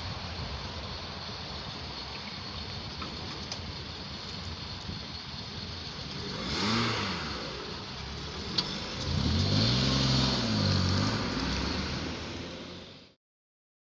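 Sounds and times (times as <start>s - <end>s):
cars driving over level crossing: 0.6s - 13.1s
car engine accelerating past: 5.9s - 13.2s.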